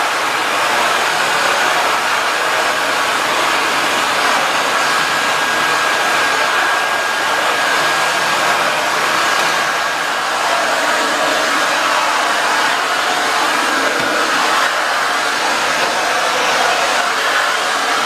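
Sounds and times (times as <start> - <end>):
vacuum cleaner running: 0.0 - 18.0.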